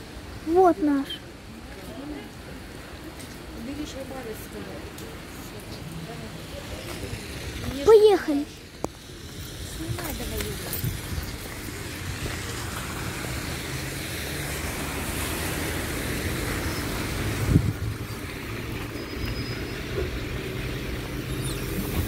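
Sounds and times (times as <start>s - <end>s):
hiss of spray on wet road: 6.2s - 22.0s.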